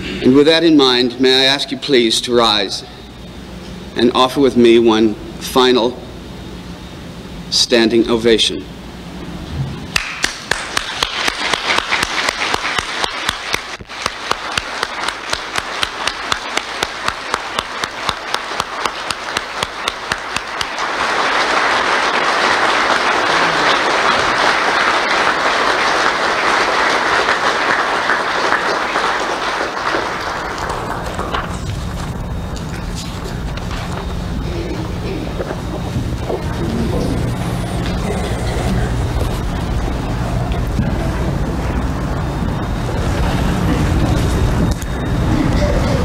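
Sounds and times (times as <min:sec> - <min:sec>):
sharp single claps close by: 0:09.9 - 0:20.7
crowd applause: 0:09.9 - 0:46.0.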